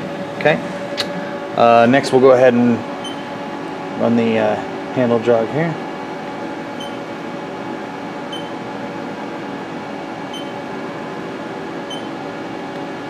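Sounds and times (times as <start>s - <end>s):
cnc mill humming: 0.0s - 13.0s
short high beeps: 6.8s - 7.0s, 8.3s - 8.6s, 11.9s - 12.1s.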